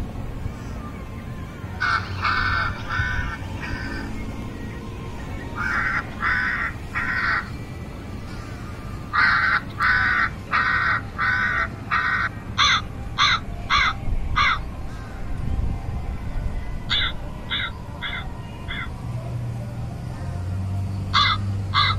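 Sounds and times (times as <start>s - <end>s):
crow cawing: 1.8s - 4.1s, 5.6s - 7.5s, 8.3s - 15.2s, 16.9s - 18.9s, 21.2s - 21.9s.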